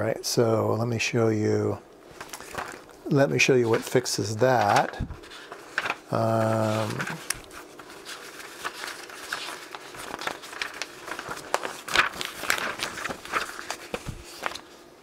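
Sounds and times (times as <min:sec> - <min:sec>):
paper pages rustling: 0:02.0 - 0:15.0.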